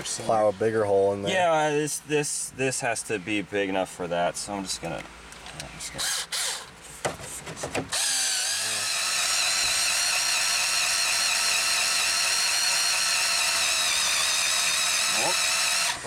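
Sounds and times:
cordless drill whining: 0:06.0 - 0:06.7, 0:07.9 - 0:16.0.

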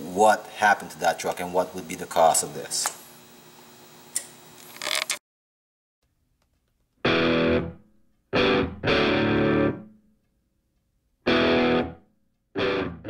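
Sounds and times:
distorted electric guitar chords: 0:07.0 - 0:07.8, 0:08.4 - 0:09.9, 0:11.3 - 0:12.0, 0:12.6 - 0:13.0.

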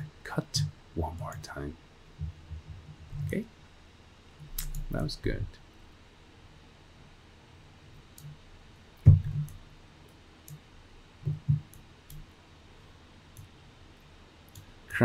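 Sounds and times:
computer mouse clicks: 0:04.5 - 0:04.9, 0:09.1 - 0:10.6
mouse knocking on desk: 0:11.2 - 0:11.7.

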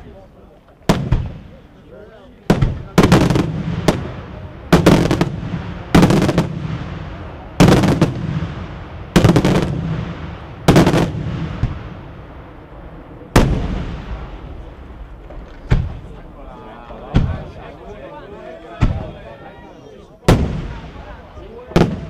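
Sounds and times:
rumbling echo: 0:02.5 - 0:17.6.

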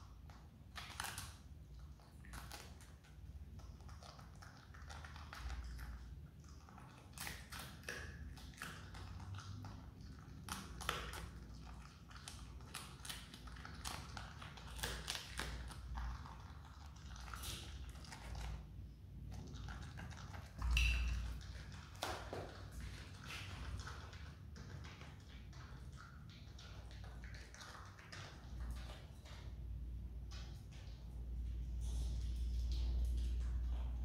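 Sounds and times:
animal gnawing cabbage crunches: 0:00.7 - 0:03.1, 0:06.5 - 0:18.6.

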